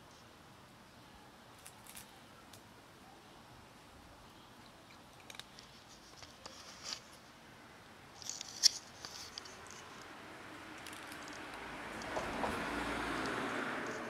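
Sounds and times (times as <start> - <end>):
cat crunching dry kibble: 1.6 - 2.6, 4.9 - 7.1, 8.2 - 12.4.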